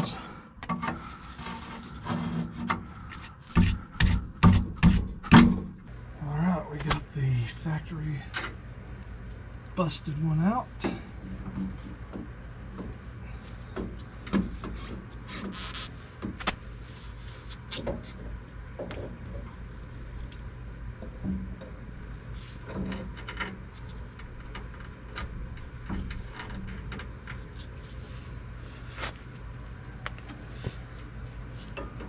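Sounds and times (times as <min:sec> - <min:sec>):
steady low rumble: 0:00.0 - 0:15.3.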